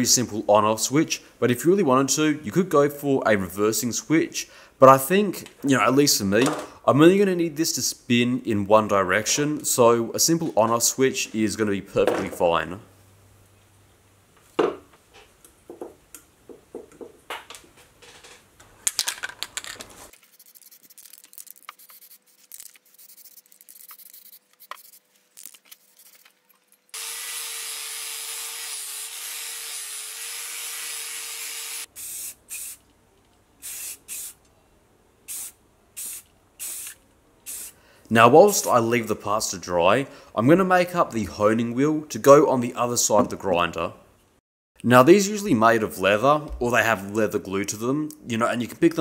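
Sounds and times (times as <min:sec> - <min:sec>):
aerosol spray can hissing: 0:31.9 - 0:32.8, 0:33.6 - 0:34.4, 0:35.3 - 0:37.8.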